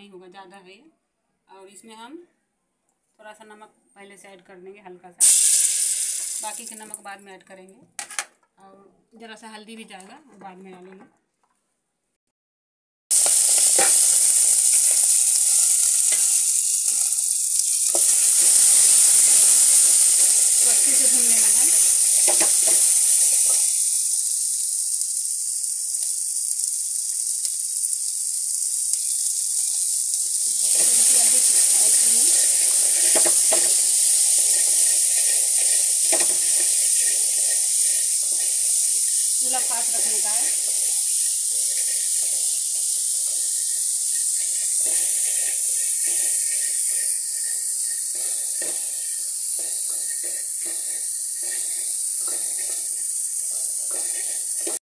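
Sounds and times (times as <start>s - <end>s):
corn kernels sizzling in oil: 5.2s - 7.0s, 13.1s - 54.8s
spatula scraping pot: 13.1s - 24.3s, 29.0s - 54.8s.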